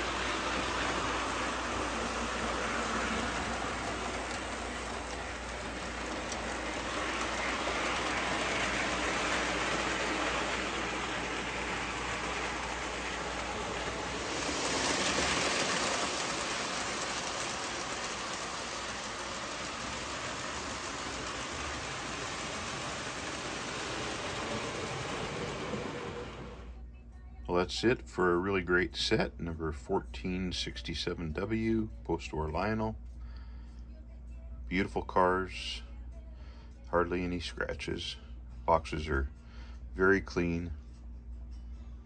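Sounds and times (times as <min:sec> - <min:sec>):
toy train running on metal track: 0:00.0 - 0:26.7.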